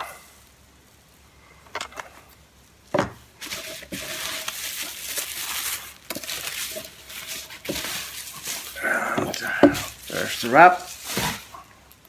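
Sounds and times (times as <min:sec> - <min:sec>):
plastic wrap crinkling: 0:03.2 - 0:12.0.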